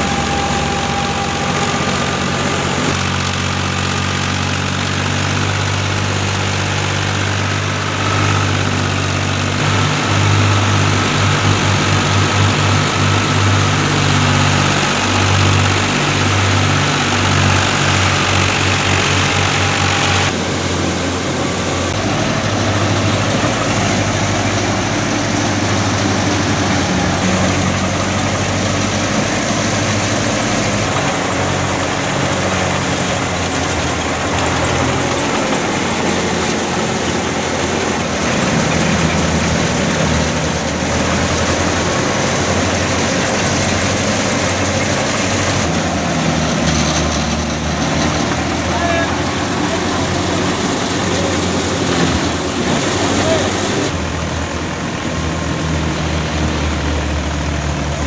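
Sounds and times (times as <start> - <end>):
threshing machine running: 0.0 - 58.0
tractor diesel engine running: 0.0 - 58.0.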